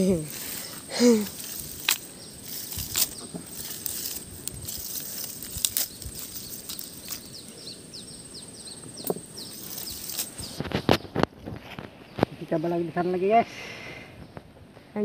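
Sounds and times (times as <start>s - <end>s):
footfalls in dry grass: 0.0s - 7.5s, 9.1s - 12.4s
bird chirping: 0.0s - 14.5s.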